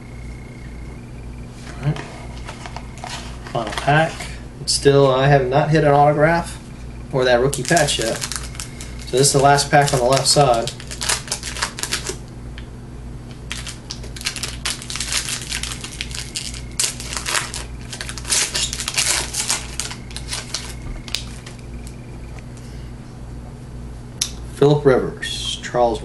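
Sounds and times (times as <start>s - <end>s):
foil wrapper tearing and crinkling: 7.5s - 12.2s, 13.5s - 21.6s.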